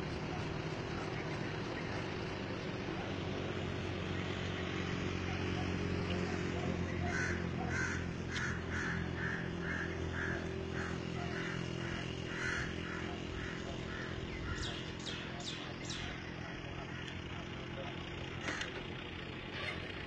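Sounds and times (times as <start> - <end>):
low engine hum: 0.0 - 20.0
bird calling: 4.0 - 18.9.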